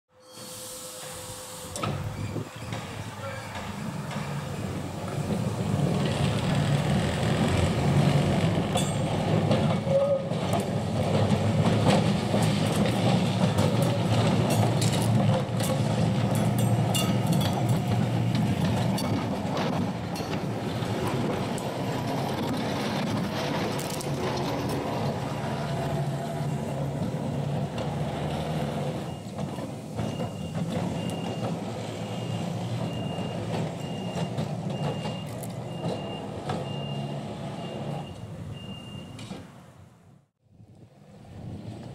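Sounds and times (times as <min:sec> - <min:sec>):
tram motor hum: 0:01.0 - 0:39.8
wheels clicking over rail joints: 0:01.7 - 0:39.8
level-crossing warning beeps: 0:29.0 - 0:39.2.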